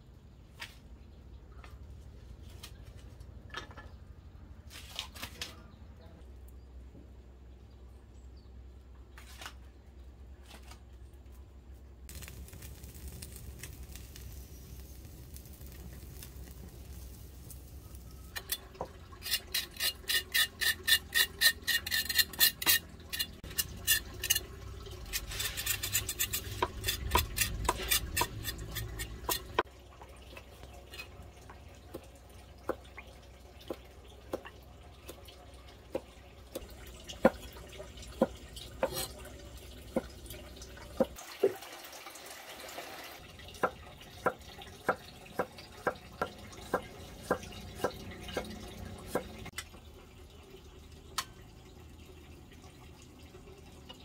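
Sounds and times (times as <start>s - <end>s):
utensil scraping: 18.3s - 29.7s.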